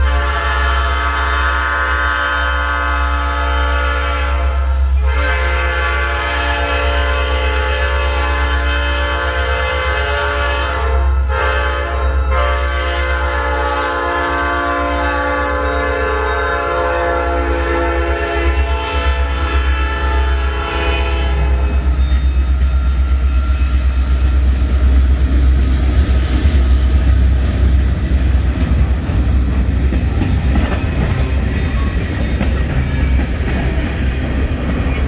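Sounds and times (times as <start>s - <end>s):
locomotive air horn blasts: 0.0s - 22.0s
deep train rumble: 0.0s - 35.0s.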